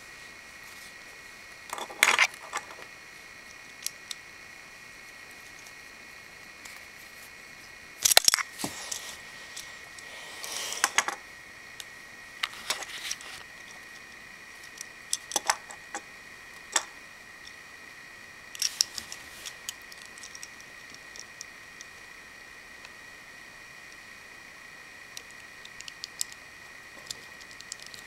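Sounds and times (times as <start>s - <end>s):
faint high hum: 0.0s - 28.0s
plastic parts clicking: 8.0s - 8.5s, 14.7s - 16.0s.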